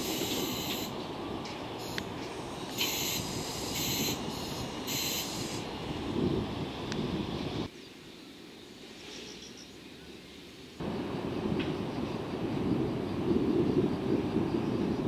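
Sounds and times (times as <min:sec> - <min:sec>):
train wheels rumbling on track: 0:00.0 - 0:07.7
short high-pitched squeals: 0:02.7 - 0:05.6.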